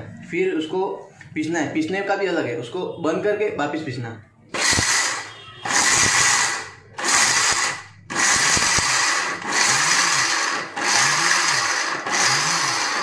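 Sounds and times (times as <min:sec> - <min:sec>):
mixer grinder grinding nuts: 0:04.6 - 0:13.0.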